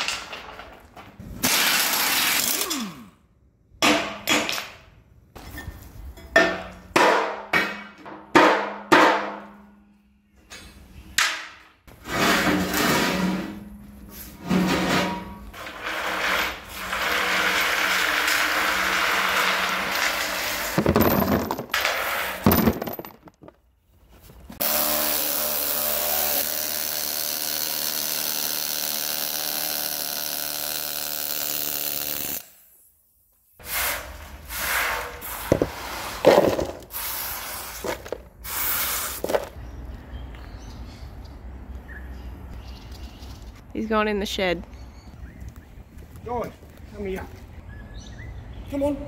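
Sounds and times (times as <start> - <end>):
knocks and handling noise: 20.7 - 24.6, 35.4 - 36.9, 37.8 - 38.4, 39.2 - 39.6
pneumatic air tool bursts: 24.6 - 32.8, 38.4 - 39.2.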